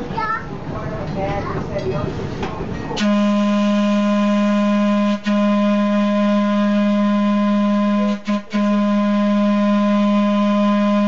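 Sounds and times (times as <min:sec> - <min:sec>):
trolley car horn blasts: 0:03.0 - 0:11.0.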